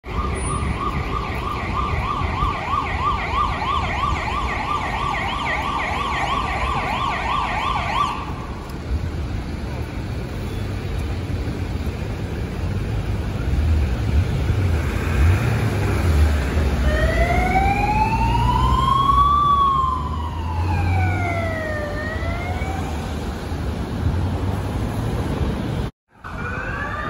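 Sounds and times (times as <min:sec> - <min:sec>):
emergency siren wailing: 0:00.0 - 0:08.7, 0:16.0 - 0:23.5, 0:26.1 - 0:27.0
city traffic rumble: 0:00.0 - 0:27.0.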